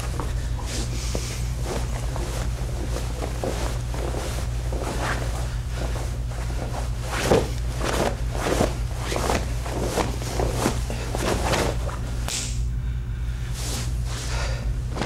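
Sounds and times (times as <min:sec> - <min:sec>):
cotton uniform swishing: 0:00.0 - 0:12.3
feet shuffling on carpet: 0:00.0 - 0:12.3
low electrical hum: 0:00.0 - 0:15.0.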